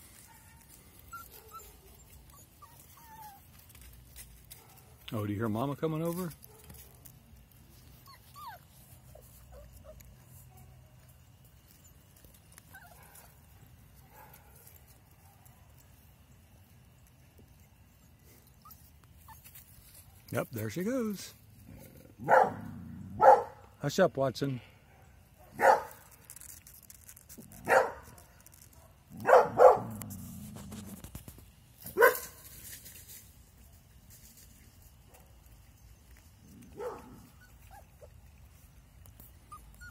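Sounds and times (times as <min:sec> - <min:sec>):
puppies whimpering: 0:00.6 - 0:03.8, 0:07.9 - 0:10.4, 0:36.6 - 0:39.9
dog barking: 0:22.2 - 0:23.6, 0:24.9 - 0:26.0, 0:27.6 - 0:28.0, 0:28.8 - 0:29.9, 0:32.0 - 0:32.4, 0:36.8 - 0:37.1.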